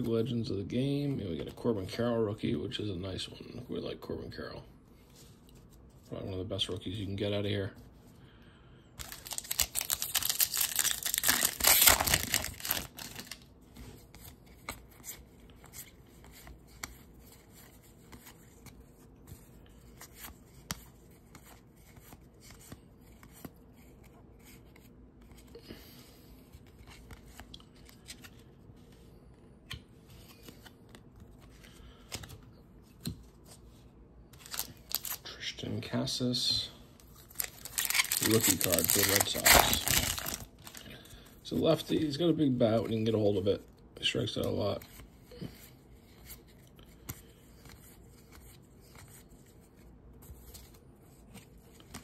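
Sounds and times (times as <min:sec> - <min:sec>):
foil wrapper tearing and crinkling: 0:09.0 - 0:13.4, 0:34.4 - 0:35.2, 0:37.3 - 0:40.8
cards flipped with clicks and rustles: 0:09.0 - 0:25.5, 0:26.5 - 0:33.7, 0:34.3 - 0:35.2, 0:37.0 - 0:41.0, 0:44.4 - 0:52.0.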